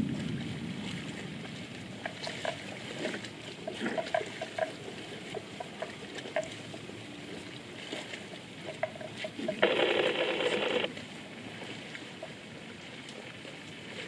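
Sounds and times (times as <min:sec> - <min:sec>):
water splashing and sloshing: 0:00.0 - 0:14.0
short irregular clicks: 0:08.7 - 0:10.9.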